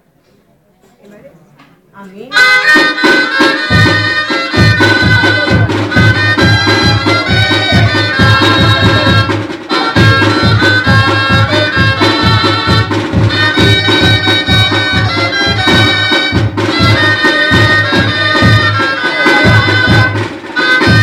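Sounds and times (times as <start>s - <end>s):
double-reed pipes playing melody: 2.3s - 21.0s
snare drum: 2.4s - 21.0s
bass drum beat: 3.4s - 21.0s.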